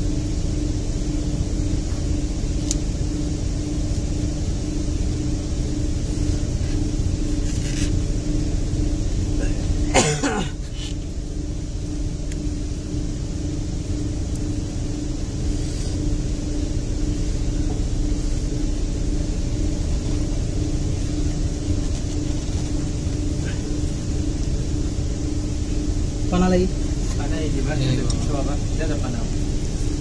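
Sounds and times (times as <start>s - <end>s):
low mechanical rumble: 0.0s - 30.0s.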